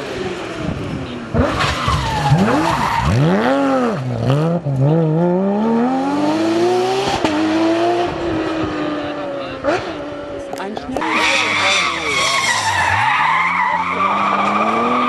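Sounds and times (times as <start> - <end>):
rally car engine: 0.0 - 15.0
tyres squealing: 11.0 - 15.0.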